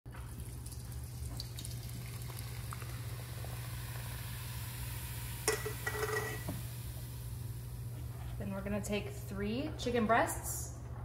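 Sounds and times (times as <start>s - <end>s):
soda pouring and fizzing: 0.1s - 8.0s.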